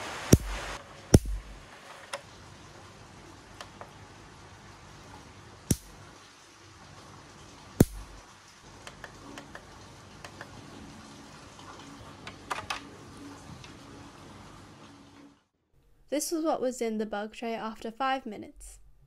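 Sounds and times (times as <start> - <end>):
heavy rain hiss: 0.0 - 8.7
bug zapper snapping: 5.7 - 5.9, 7.8 - 8.2.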